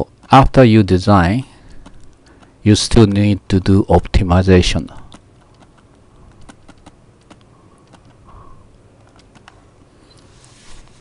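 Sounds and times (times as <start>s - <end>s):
soft rush of noise: 0.9s - 11.0s
stylus clicking on pen tablet: 5.1s - 8.2s, 9.0s - 10.3s.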